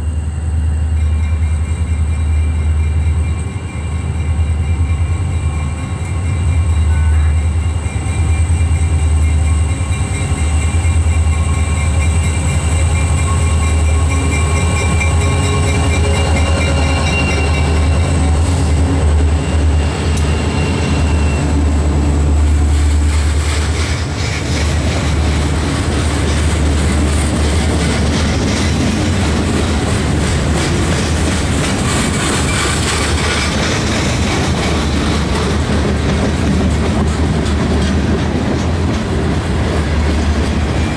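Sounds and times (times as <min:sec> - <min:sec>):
diesel locomotive engine rumble: 0:00.0 - 0:40.9
train wheels clacking over rail joints: 0:22.4 - 0:40.9.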